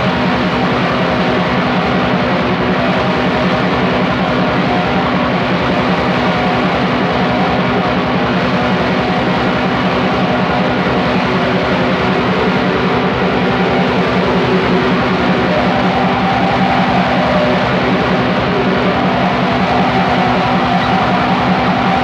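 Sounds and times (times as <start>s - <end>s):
black metal music: 10.2s - 22.0s.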